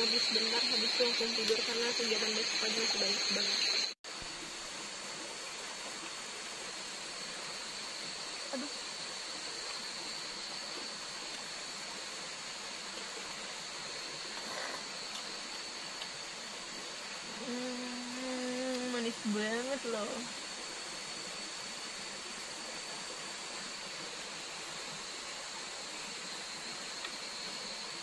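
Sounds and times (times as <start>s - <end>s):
high thin insect drone: 0.0s - 28.0s
rushing water: 0.0s - 28.0s
person humming: 17.4s - 19.0s.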